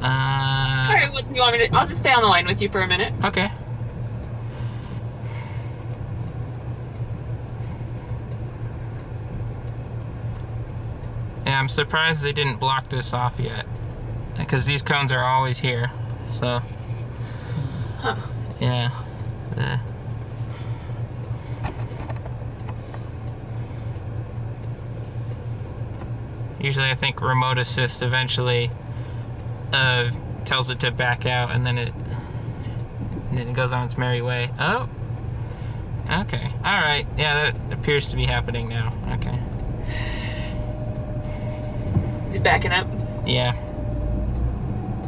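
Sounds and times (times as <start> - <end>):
low cabin hum: 0.0 - 45.0
faint ticks: 3.5 - 14.5, 18.4 - 26.9.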